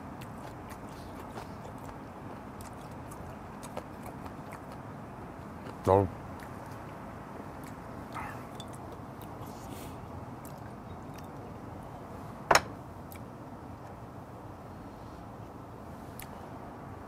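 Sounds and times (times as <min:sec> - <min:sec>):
steady background hiss: 0:00.0 - 0:17.0.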